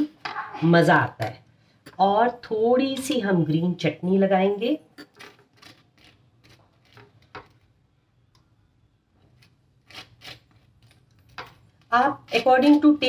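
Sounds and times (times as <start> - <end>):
knife scraping toast: 5.0 - 7.6, 9.3 - 12.5.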